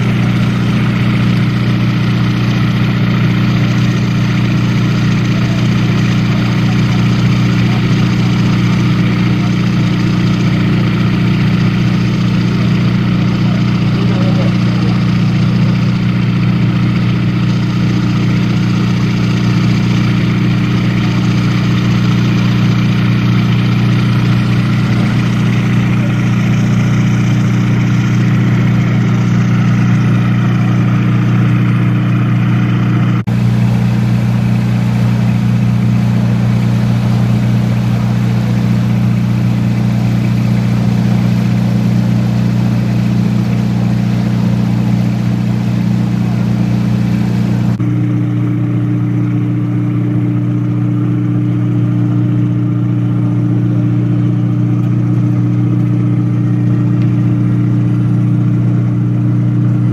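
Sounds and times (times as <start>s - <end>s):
boat engine drone: 0.0s - 59.9s.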